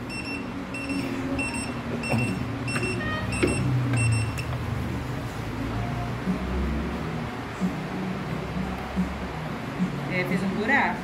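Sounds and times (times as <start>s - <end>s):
short high beeps: 0.1s - 4.5s.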